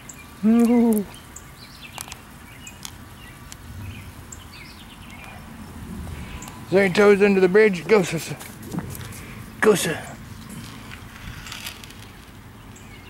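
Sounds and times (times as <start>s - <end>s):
bird chirps: 0.0s - 7.4s, 11.5s - 13.0s
man exclaiming: 0.4s - 1.1s.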